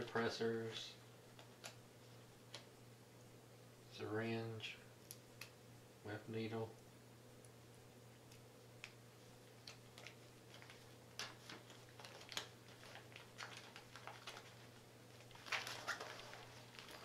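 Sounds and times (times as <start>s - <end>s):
plastic packets crinkling: 9.5s - 17.0s.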